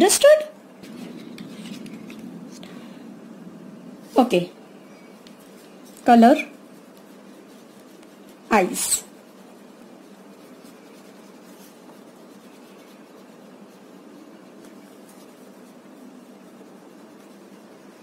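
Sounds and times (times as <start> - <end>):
steady low hiss: 0.0 - 18.0
crayon scratching on paper: 5.3 - 18.0.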